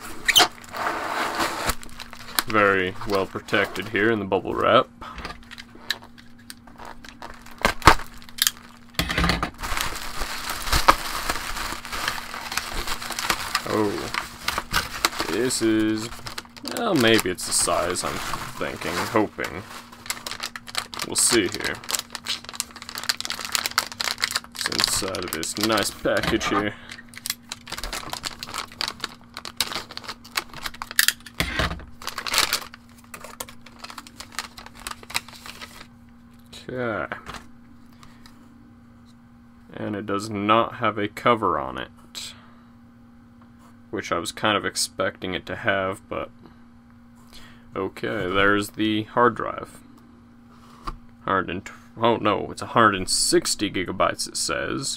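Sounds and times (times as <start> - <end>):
bubble wrap crackling: 0.0 - 3.9, 5.8 - 31.3, 31.9 - 35.9
plastic crinkling: 1.4 - 4.0, 5.4 - 35.9.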